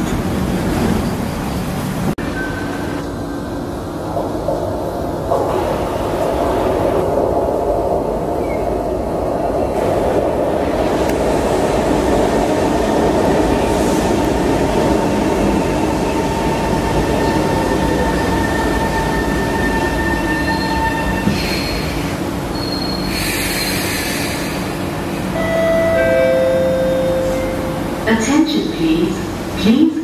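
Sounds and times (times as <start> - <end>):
metro train slowing to a stop: 0.0 - 30.0
squealing train wheels: 16.3 - 24.8.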